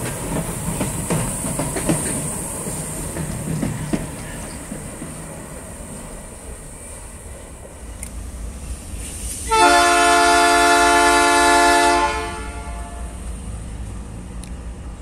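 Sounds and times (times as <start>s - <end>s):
locomotive air horn: 9.5s - 13.2s.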